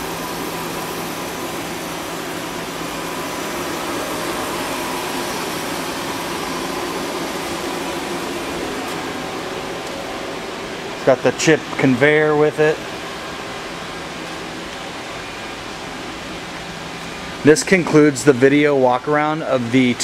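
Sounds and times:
mechanical hum and hiss: 0.0s - 20.0s.

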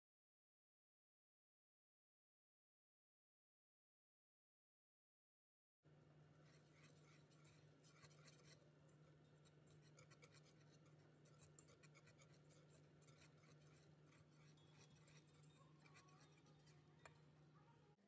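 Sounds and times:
whisk scraping in saucepan: 6.4s - 17.4s.

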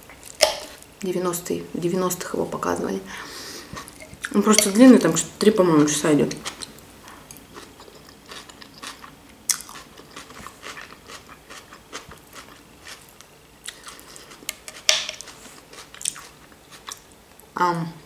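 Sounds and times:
chewing crunchy salad: 3.8s - 17.1s.

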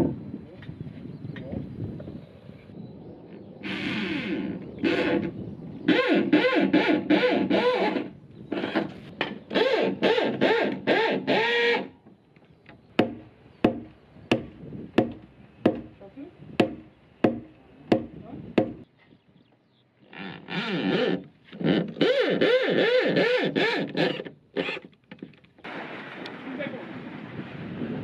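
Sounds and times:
electric drill into timber: 3.6s - 5.3s, 5.9s - 8.9s, 9.5s - 11.9s, 20.3s - 24.9s
sharp evenly spaced knocks: 13.0s - 16.0s, 16.6s - 18.9s.

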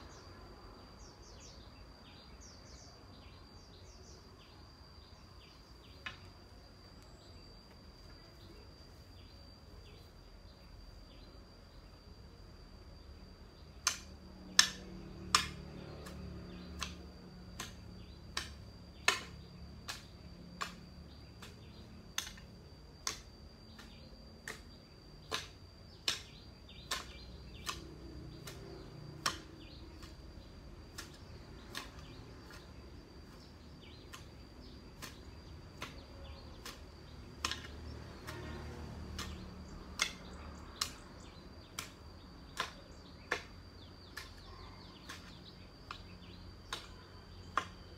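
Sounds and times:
blade chopping grass: 13.8s - 47.9s.

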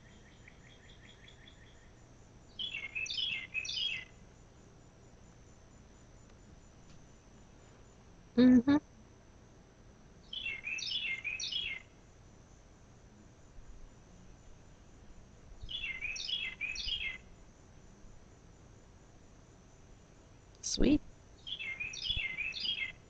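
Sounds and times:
faint insect trill: 0.0s - 23.0s
songbird whistling: 2.6s - 4.1s, 10.3s - 11.9s, 15.7s - 17.2s, 21.4s - 23.0s.

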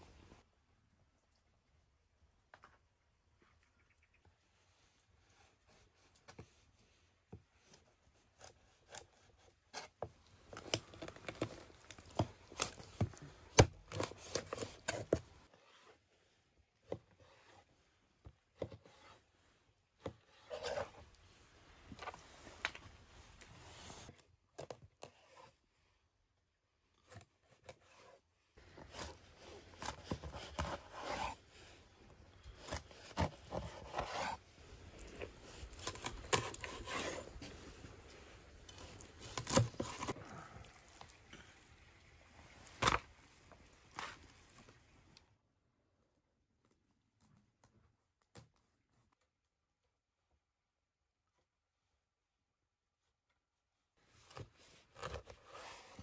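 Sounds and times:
blade scraping: 28.8s - 31.8s, 32.4s - 40.2s.

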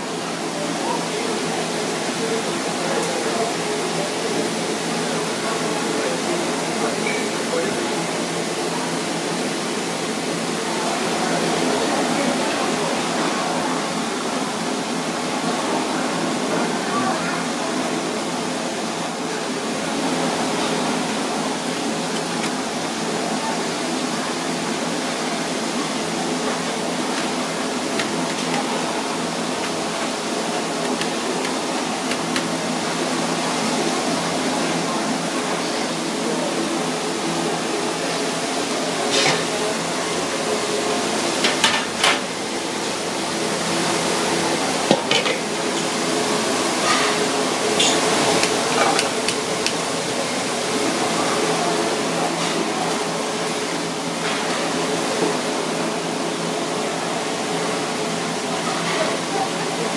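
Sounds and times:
metal trays and pot lid clanking: 44.9s - 45.9s.

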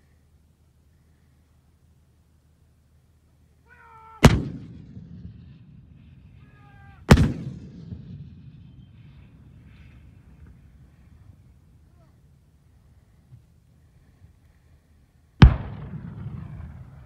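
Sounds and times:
person shouting: 3.6s - 4.3s, 6.4s - 7.1s
distant artillery gun firing: 4.2s - 6.3s, 7.0s - 9.8s, 15.4s - 17.0s.

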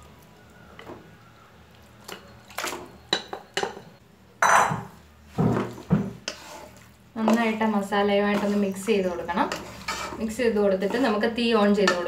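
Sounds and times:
spatula knocking and scraping pot: 3.1s - 12.0s.

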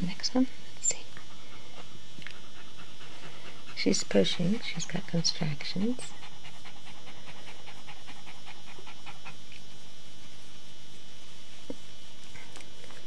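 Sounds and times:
dog panting rapidly: 1.2s - 9.5s.

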